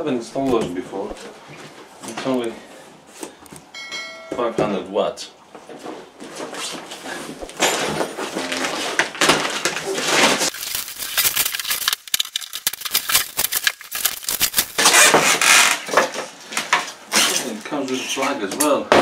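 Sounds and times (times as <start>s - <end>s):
cardboard and plastic rustling: 5.6s - 17.6s
packaging knocks and scrapes: 6.3s - 16.8s.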